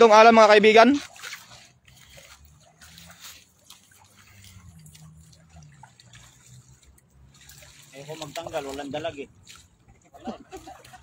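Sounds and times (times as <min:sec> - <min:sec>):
water dripping and trickling: 0:00.0 - 0:11.0.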